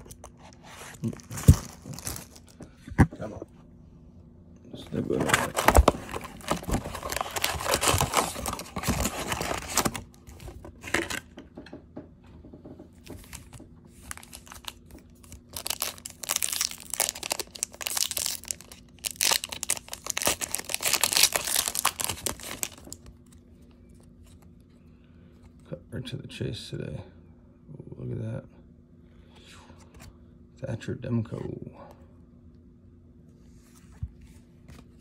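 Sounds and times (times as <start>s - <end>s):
cardboard box opening: 0.0s - 2.5s, 5.0s - 11.2s
foil packs crinkling: 0.0s - 2.7s, 4.9s - 11.3s, 13.2s - 23.4s
pack tearing open: 1.0s - 2.6s, 5.2s - 11.2s, 14.1s - 23.1s.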